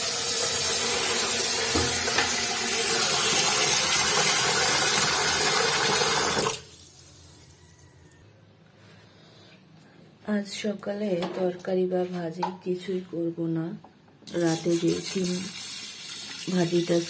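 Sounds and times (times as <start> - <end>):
tap water splashing into a pot: 1.6 - 3.4.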